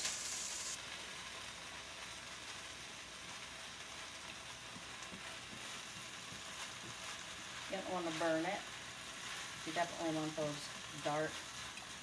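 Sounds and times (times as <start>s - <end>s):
meat sizzling in a skillet: 0.0s - 12.0s.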